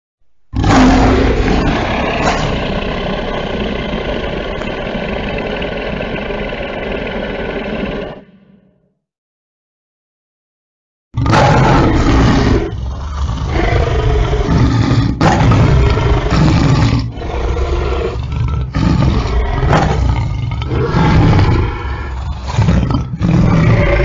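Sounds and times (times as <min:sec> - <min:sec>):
lion roaring: 0:00.5 - 0:08.8, 0:11.2 - 0:24.0.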